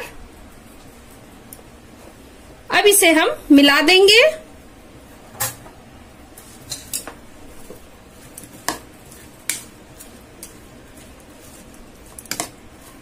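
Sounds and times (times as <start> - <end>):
squishing of wet vegetables: 6.2 - 13.0.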